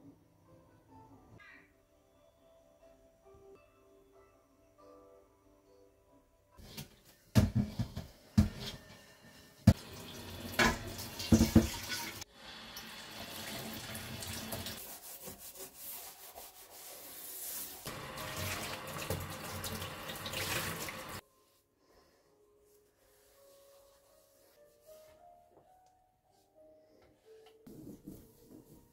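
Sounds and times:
tap running into a metal sink: 10.5s - 12.2s, 18.3s - 21.0s.

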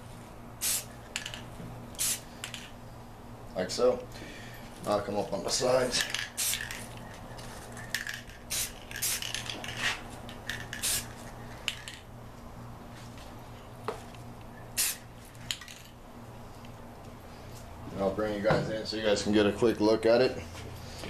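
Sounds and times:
faint steady hum: 0.0s - 21.0s
spray paint can hissing: 0.6s - 2.7s, 6.0s - 6.8s, 7.9s - 12.0s, 14.7s - 15.7s.

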